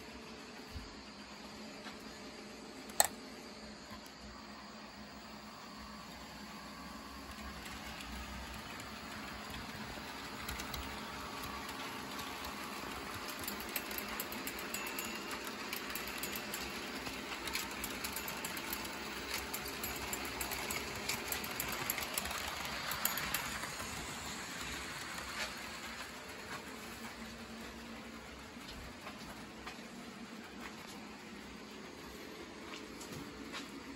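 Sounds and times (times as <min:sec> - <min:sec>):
metal wheels clicking over rail joints: 0:07.4 - 0:27.1.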